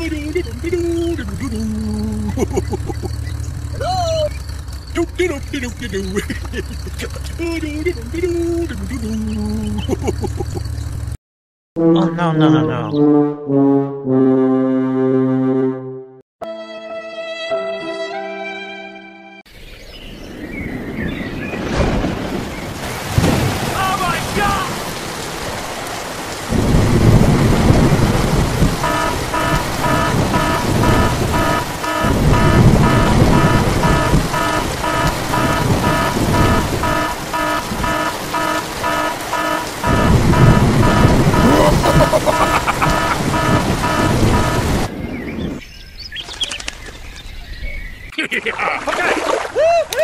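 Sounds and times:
heavy rain: 0:00.0 - 0:10.8, 0:20.8 - 0:45.0
thunder rolling: 0:20.2 - 0:45.6
fast repeating pitched pulse: 0:28.7 - 0:44.9.

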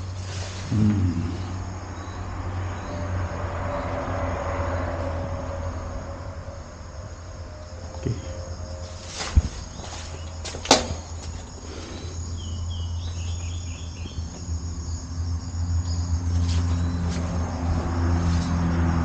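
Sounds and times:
insects shrilling: 0:00.0 - 0:03.4, 0:05.6 - 0:18.7
chirps: 0:11.6 - 0:18.5.

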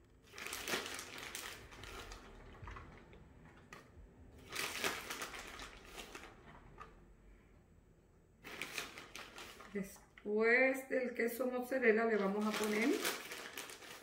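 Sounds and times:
plastic bag crinkling: 0:00.0 - 0:06.9, 0:08.4 - 0:10.3, 0:11.8 - 0:14.0.

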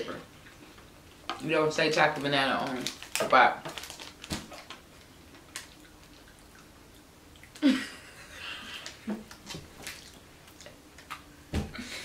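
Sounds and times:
woman laughing: 0:07.6 - 0:08.9.

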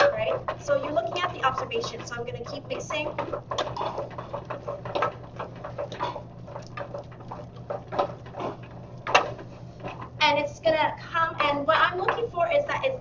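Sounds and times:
spoon beating dough in saucepan: 0:00.0 - 0:10.2
steady low hum: 0:00.0 - 0:13.0.

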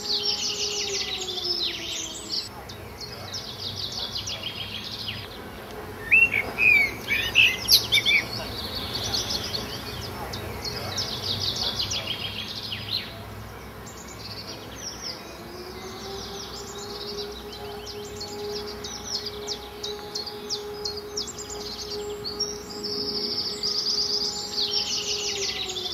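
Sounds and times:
small birds chirping: 0:00.0 - 0:25.9
steady low tone: 0:13.8 - 0:25.9.

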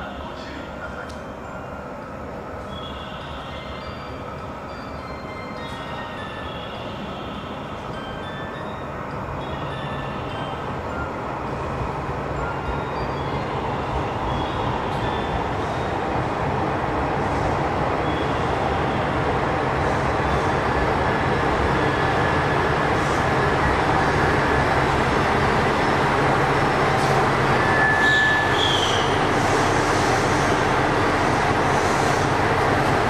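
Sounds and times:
diesel train engines running: 0:00.0 - 0:33.0
train rumble: 0:00.0 - 0:33.0
brief high squeal: 0:27.6 - 0:29.2.

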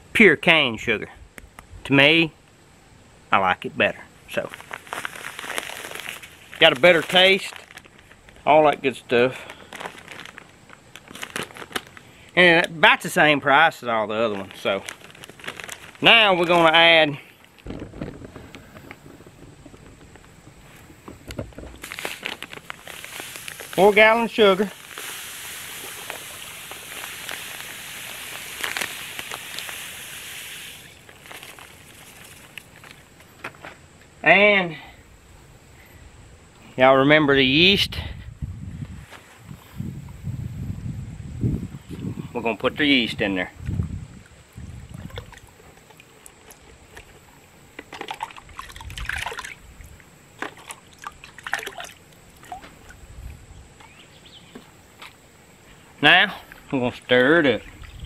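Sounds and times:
sugar pouring into water: 0:24.7 - 0:32.5
liquid sloshing in a bucket: 0:44.7 - 0:53.0.

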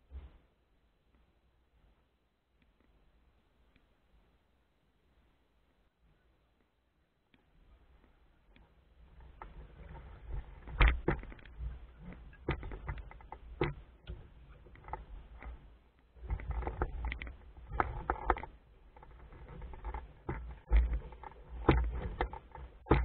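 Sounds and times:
wind rumble on microphone: 0:09.0 - 0:23.0
knocks on wooden boat: 0:21.6 - 0:23.0.

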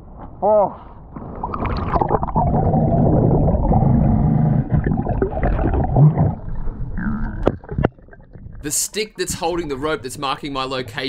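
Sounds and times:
muffled underwater rumble: 0:01.3 - 0:08.7
regulator gurgling: 0:01.3 - 0:08.7
water splashing: 0:04.7 - 0:08.7.

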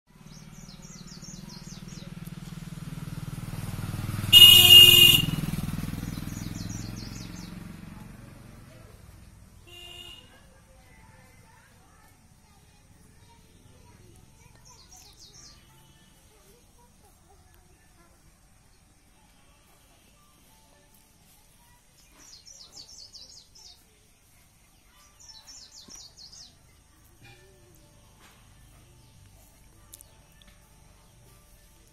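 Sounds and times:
vehicle engine passing by: 0:00.1 - 0:11.1
songbird chirping: 0:00.1 - 0:31.9
vehicle horn blast: 0:04.3 - 0:05.8, 0:09.6 - 0:10.4.

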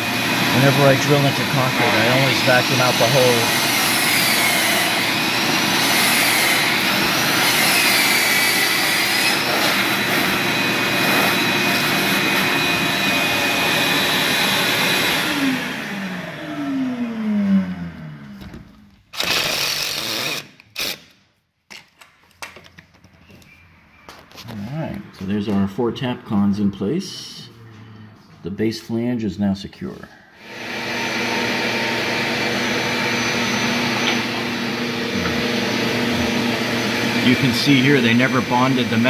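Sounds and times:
shop vacuum running with whistle: 0:00.0 - 0:18.0, 0:30.4 - 0:39.0.

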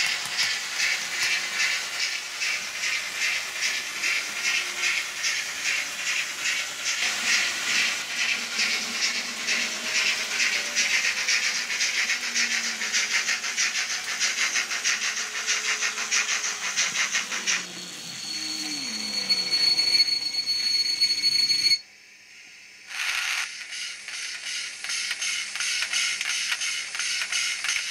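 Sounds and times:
steam hiss: 0:00.0 - 0:21.7
steam locomotive chuffing: 0:00.0 - 0:21.8
steady high tone: 0:14.7 - 0:21.8.

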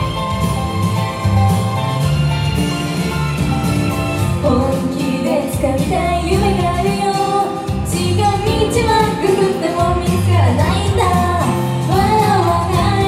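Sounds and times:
pop song with steady beat: 0:00.0 - 0:13.0
women singing: 0:04.4 - 0:13.0.

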